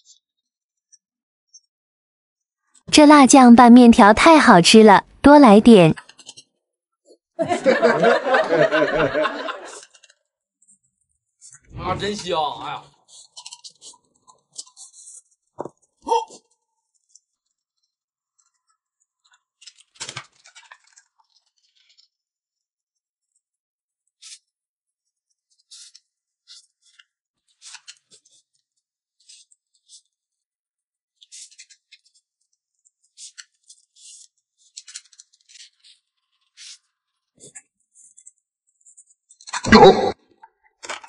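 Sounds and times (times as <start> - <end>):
person slurping and chewing noodles: 13.1 - 15.3.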